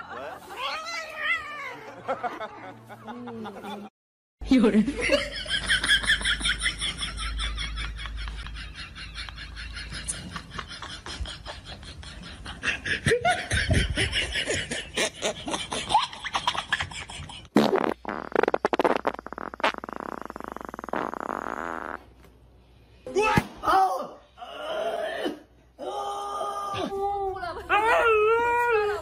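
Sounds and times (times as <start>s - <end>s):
people laughing hard: 0.0s - 0.9s, 1.7s - 3.9s, 5.0s - 17.5s.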